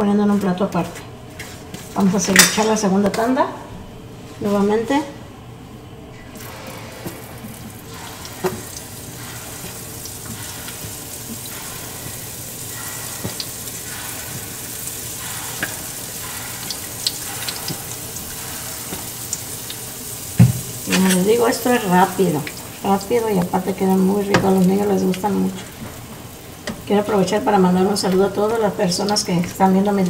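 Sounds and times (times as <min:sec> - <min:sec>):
batter sizzling in hot oil: 0:06.5 - 0:30.0
oil crackles and pops: 0:07.2 - 0:21.2.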